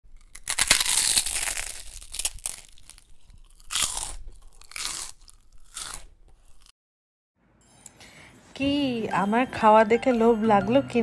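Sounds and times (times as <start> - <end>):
crunchy chewing: 0.1 - 6.7.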